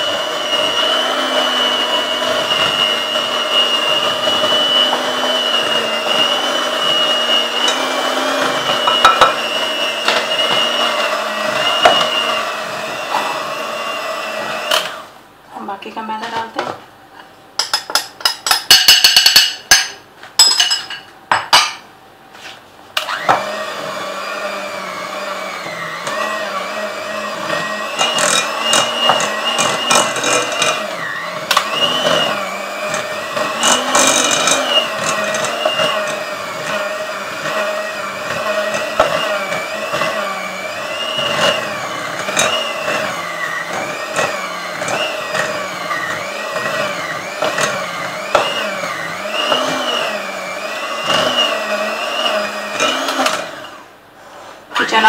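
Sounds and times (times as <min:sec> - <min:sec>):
electric hand mixer running: 0:00.0 - 0:15.2, 0:23.0 - 0:54.0.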